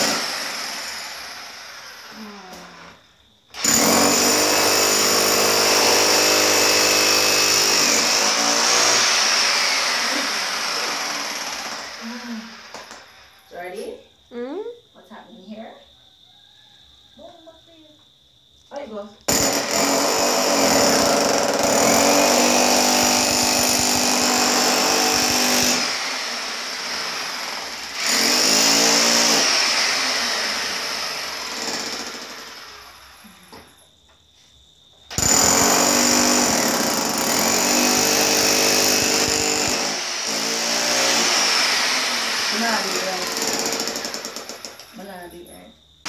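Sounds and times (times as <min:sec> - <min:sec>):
jackhammer chiselling concrete: 0:00.0 - 0:02.2, 0:03.6 - 0:13.0, 0:19.3 - 0:33.0, 0:35.1 - 0:45.0.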